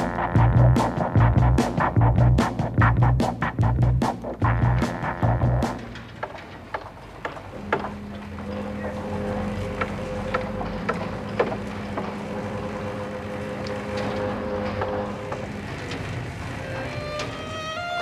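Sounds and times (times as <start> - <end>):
low hum: 7.0 - 17.8.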